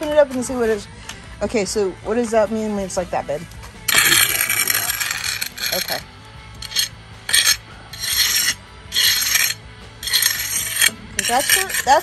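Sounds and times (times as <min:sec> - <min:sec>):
trowel scraping wet concrete: 0:03.9 - 0:06.0, 0:06.6 - 0:12.0.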